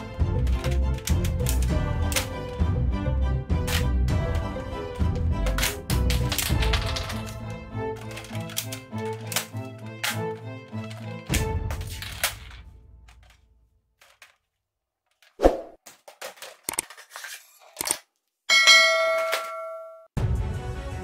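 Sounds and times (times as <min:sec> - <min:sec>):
background music: 0:00.0 - 0:13.4, 0:20.2 - 0:21.0
plastic toy guns clacking: 0:00.4 - 0:02.5, 0:05.4 - 0:13.4, 0:14.0 - 0:14.5, 0:15.9 - 0:18.1
bell-like ding: 0:18.5 - 0:20.1.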